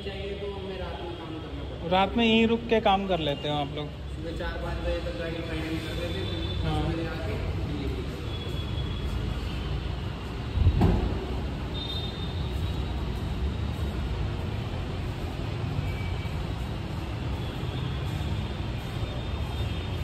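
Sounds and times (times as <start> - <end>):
car door shutting thud: 10.7 - 11.4.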